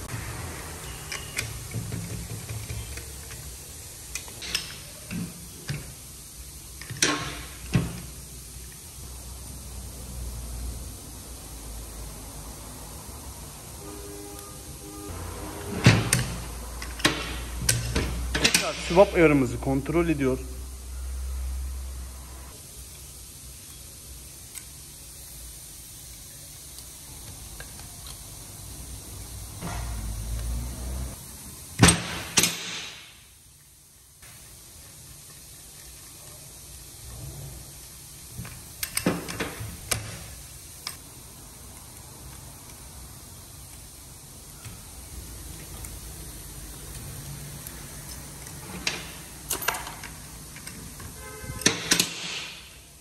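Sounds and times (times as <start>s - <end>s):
metal tools clinking on metal: 48.4s - 51.0s.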